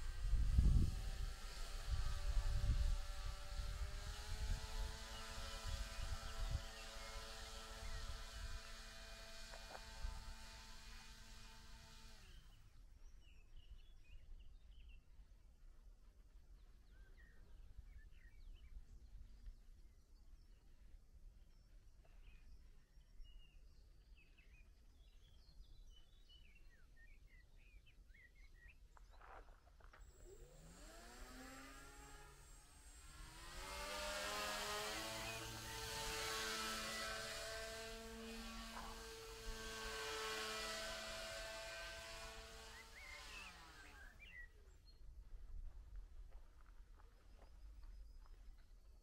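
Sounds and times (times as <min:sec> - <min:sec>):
model aircraft motor buzzing: 0:00.0 - 0:12.7, 0:29.9 - 0:44.6.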